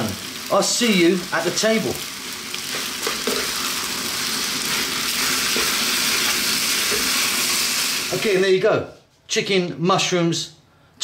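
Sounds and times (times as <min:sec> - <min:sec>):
pasta sizzling in a frying pan: 0:00.0 - 0:08.4
spoon knocking in a pan: 0:02.7 - 0:03.6.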